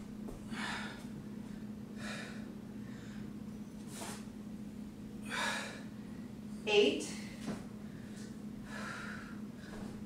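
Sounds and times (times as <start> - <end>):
steady low hum: 0.0 - 10.0
woman breathing hard: 0.5 - 3.4, 5.2 - 6.3, 7.1 - 10.0.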